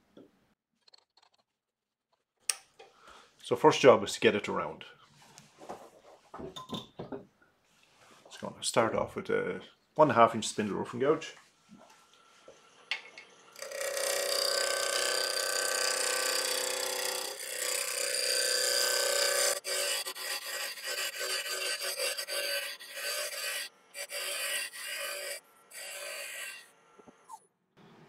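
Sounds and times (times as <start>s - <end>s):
gouge cutting wood on lathe: 13.6s - 26.8s.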